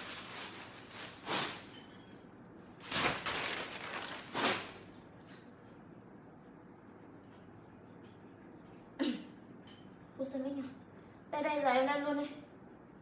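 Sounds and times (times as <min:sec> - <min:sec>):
clothes and packages rustling: 0:00.0 - 0:02.1, 0:02.8 - 0:05.0.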